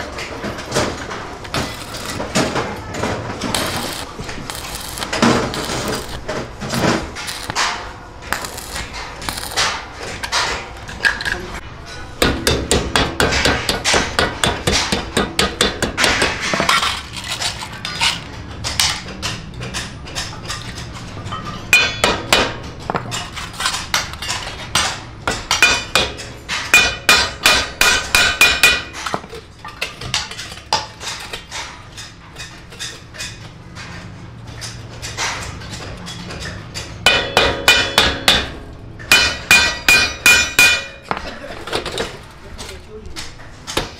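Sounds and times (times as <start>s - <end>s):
hammer striking sheet metal: 12.2s - 16.8s, 21.7s - 23.2s, 23.9s - 29.1s, 36.1s - 41.2s.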